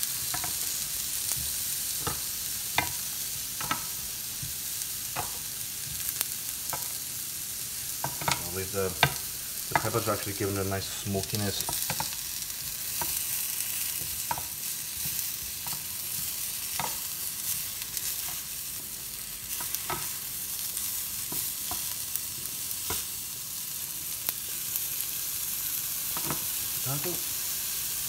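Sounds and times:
vegetables sizzling in a pan: 0:00.0 - 0:28.0.

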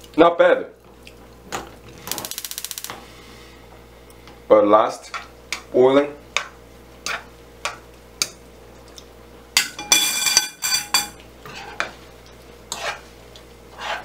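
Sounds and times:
utensil scraping frying pan: 0:06.4 - 0:07.8, 0:09.9 - 0:14.0
ringing clang: 0:09.6 - 0:11.2.

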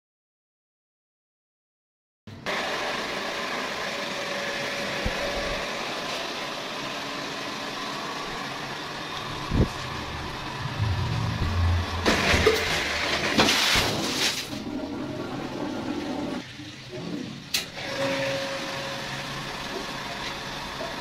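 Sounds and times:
steady machine hum: 0:06.4 - 0:13.5
water rushing through filter: 0:08.8 - 0:19.6.

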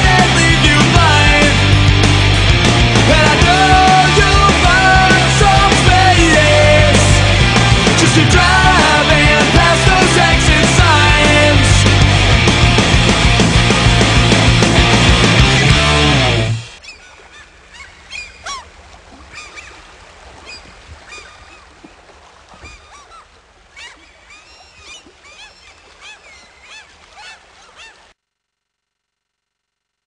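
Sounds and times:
rock song: 0:00.0 - 0:16.8
flock of birds chirping: 0:16.7 - 0:28.1.

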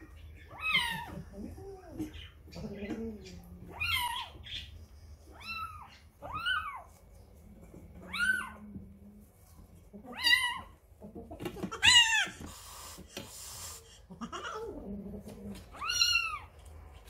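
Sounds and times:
cat meowing: 0:15.7 - 0:16.5.

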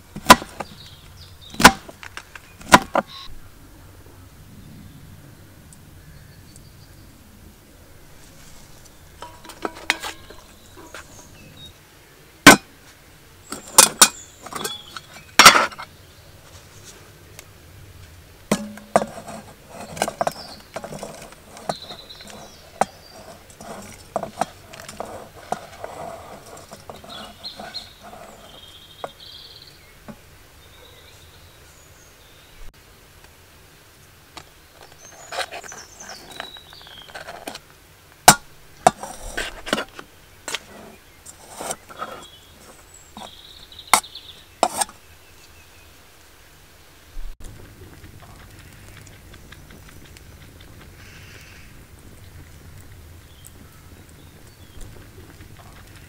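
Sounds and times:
metal cookware clinking: 0:09.2 - 0:11.0, 0:13.5 - 0:15.8, 0:18.5 - 0:28.5.

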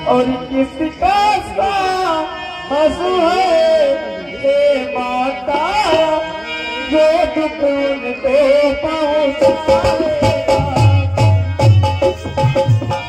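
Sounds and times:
sustained harmonium notes: 0:00.0 - 0:13.0.

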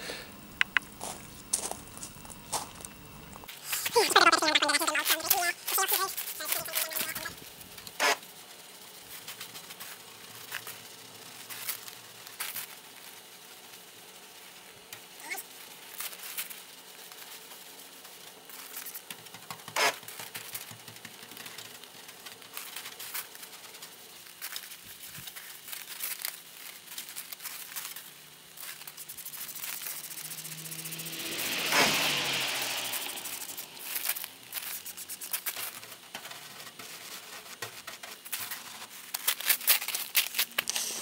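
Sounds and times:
low steady hum: 0:00.0 - 0:08.0
crackling and clicking handling: 0:04.7 - 0:31.0, 0:33.2 - 0:41.0.

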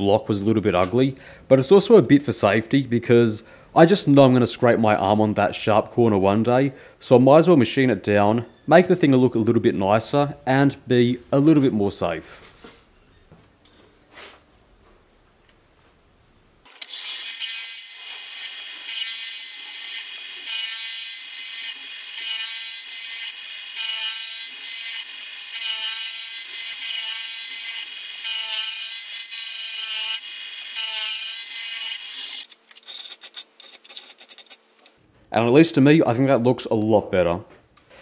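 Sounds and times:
milling cutter cutting steel: 0:16.7 - 0:34.6.

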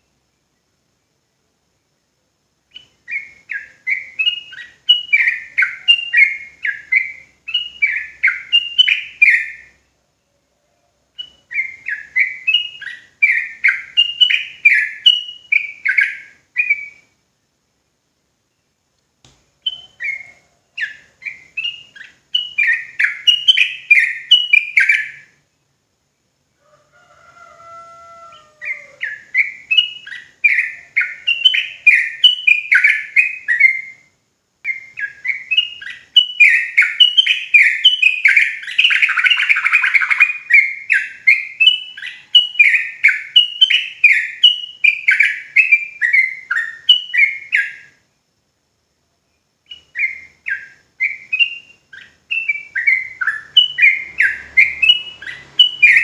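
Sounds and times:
bird chattering song: 0:02.7 - 0:09.8, 0:11.1 - 0:17.2, 0:19.6 - 0:25.4, 0:28.3 - 0:34.0, 0:34.7 - 0:48.0, 0:49.6 - 0:56.0.

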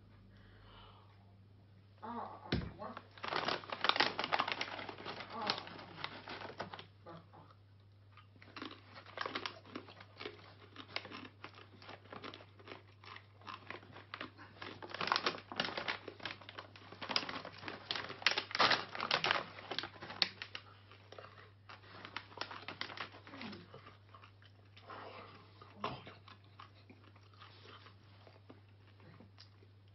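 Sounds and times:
snack pouch crinkling: 0:03.0 - 0:06.9, 0:08.4 - 0:24.6
chewing crisp corn chip: 0:03.2 - 0:29.9.

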